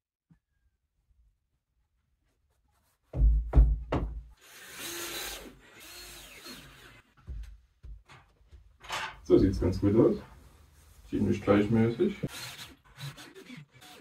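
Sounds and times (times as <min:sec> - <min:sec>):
heavy thumps: 0:03.1 - 0:04.3
rasping tool noise: 0:12.3 - 0:14.0.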